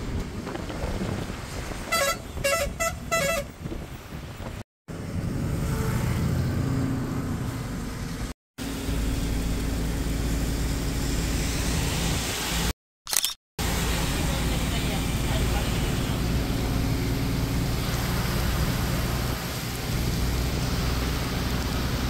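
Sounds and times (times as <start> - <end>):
vehicle engine and road noise: 0.0 - 22.0
vehicle horn honking: 1.9 - 3.6.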